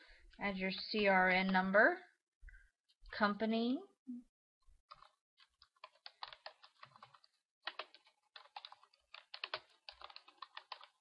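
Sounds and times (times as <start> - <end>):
computer keyboard typing: 4.9 - 11.0.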